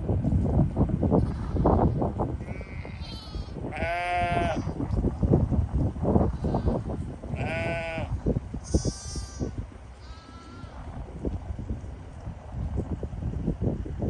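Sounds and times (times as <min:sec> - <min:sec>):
wind rumble on microphone: 0:00.0 - 0:14.0
sheep bleating: 0:02.4 - 0:04.7, 0:07.4 - 0:10.8.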